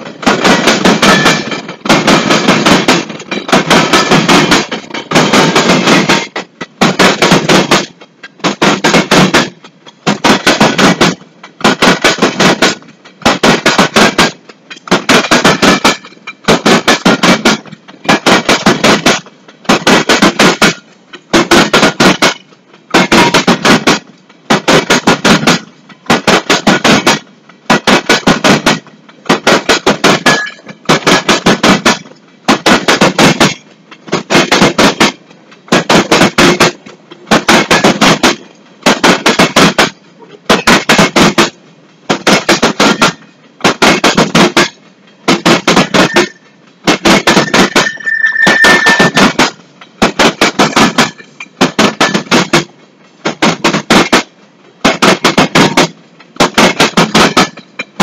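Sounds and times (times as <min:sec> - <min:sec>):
wheels clattering over rail joints: 0:00.0 - 0:58.0
high wheel squeal: 0:47.4 - 0:49.3.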